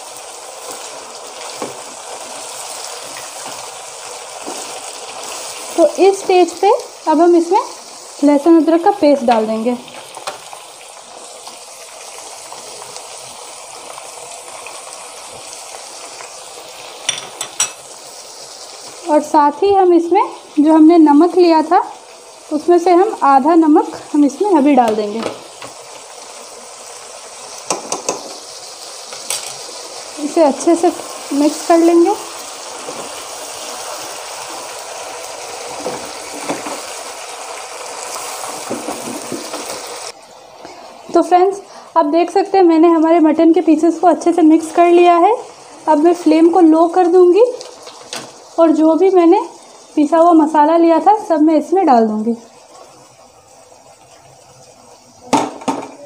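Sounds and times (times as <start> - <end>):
meat sizzling in hot oil: 0.0 - 56.0
spatula scraping and knocking pan: 27.7 - 28.4, 38.5 - 40.0.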